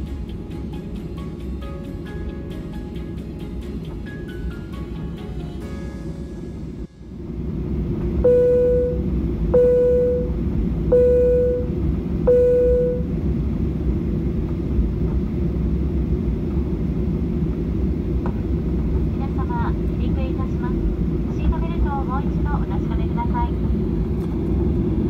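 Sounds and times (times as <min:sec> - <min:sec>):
low cabin rumble: 0:06.0 - 0:25.0
airliner cabin chime: 0:08.2 - 0:13.2.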